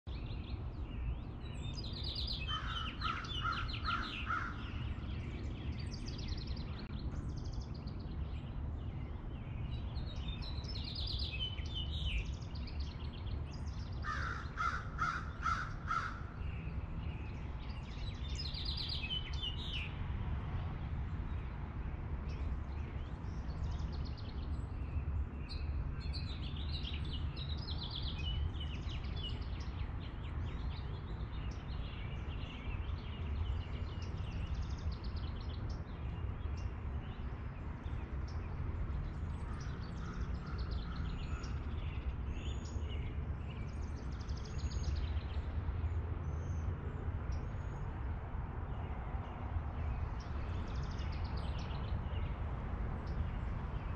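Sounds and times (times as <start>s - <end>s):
songbirds singing: 0.0s - 53.9s
crow cawing: 2.5s - 4.6s, 14.0s - 16.3s.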